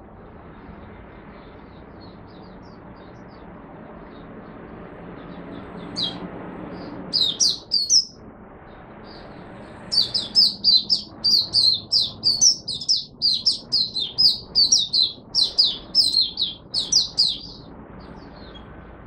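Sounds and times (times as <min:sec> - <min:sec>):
bird chirping: 0:05.2 - 0:08.2, 0:09.0 - 0:18.8.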